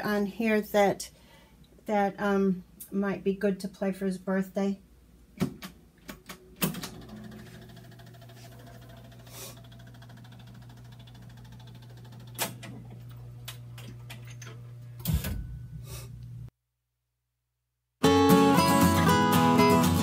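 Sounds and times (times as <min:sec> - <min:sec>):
mechanical clunks: 0:05.4 - 0:08.2, 0:12.2 - 0:15.8
record-changer mechanism humming: 0:06.2 - 0:16.5.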